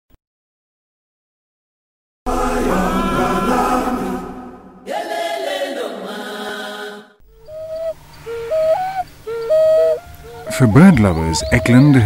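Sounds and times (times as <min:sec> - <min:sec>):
choir-like chanted singing: 0:02.3 - 0:07.2.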